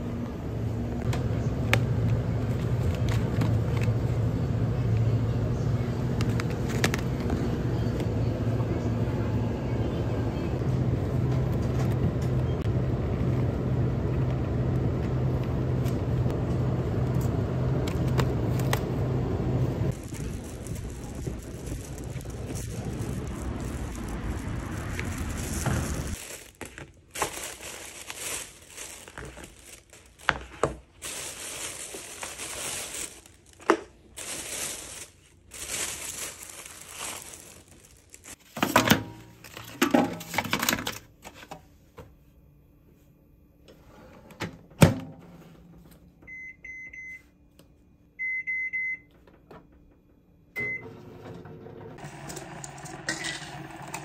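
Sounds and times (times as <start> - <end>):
microwave oven humming: 0.0 - 23.3, 38.9 - 54.0
plastic bag rustling: 19.9 - 38.6.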